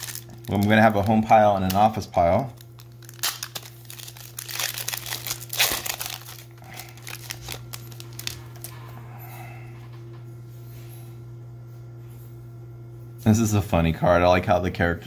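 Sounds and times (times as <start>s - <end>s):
foil wrapper crinkling and tearing: 0.0s - 8.8s
steady low hum: 0.0s - 15.0s.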